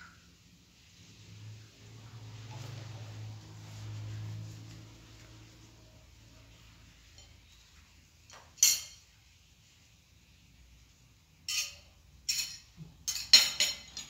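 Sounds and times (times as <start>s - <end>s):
plates and dishes clinking: 11.4s - 14.0s.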